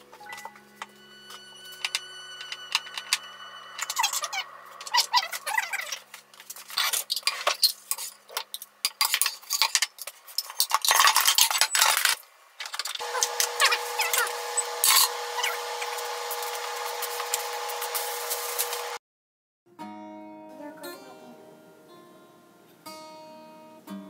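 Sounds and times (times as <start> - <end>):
utensils clinking: 0.0 - 18.9.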